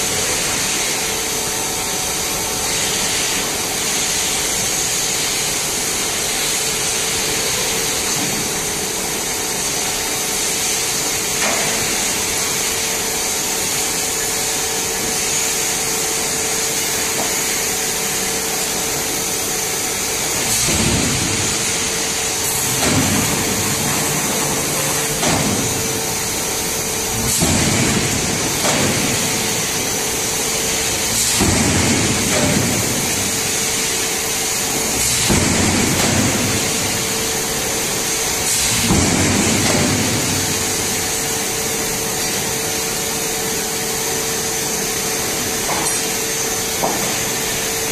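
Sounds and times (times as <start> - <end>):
forging press working: 1.7 - 47.9.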